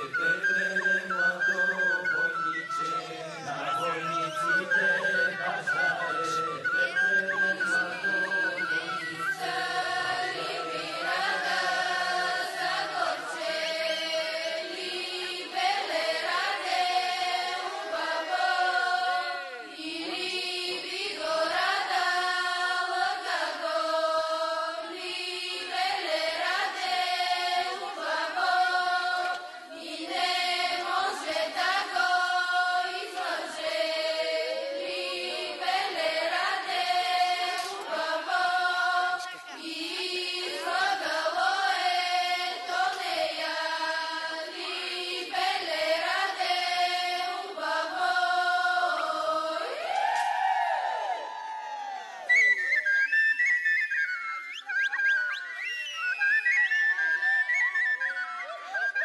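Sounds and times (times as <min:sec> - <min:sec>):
choir singing unaccompanied: 0:00.0 - 0:51.4.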